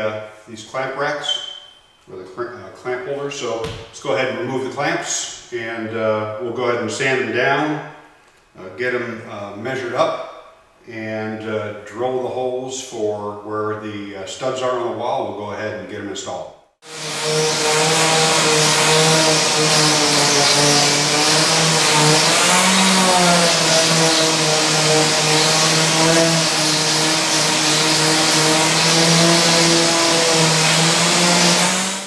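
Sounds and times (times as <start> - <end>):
orbital sander on wood: 16.8 - 32.0.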